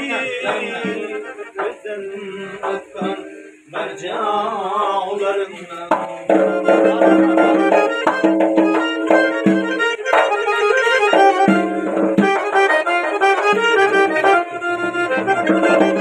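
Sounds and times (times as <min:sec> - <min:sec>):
man singing: 0:00.0 - 0:08.2
accordion chords: 0:00.0 - 0:16.0
frame drum strokes: 0:02.6 - 0:04.0, 0:05.8 - 0:16.0.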